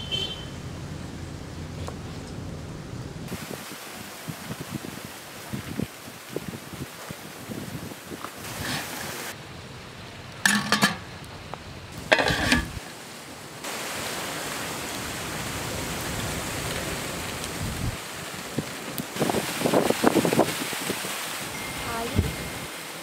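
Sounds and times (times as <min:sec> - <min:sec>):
steady hiss: 0:00.8 - 0:23.0
steel cookware clattering: 0:10.4 - 0:11.1, 0:12.1 - 0:12.8.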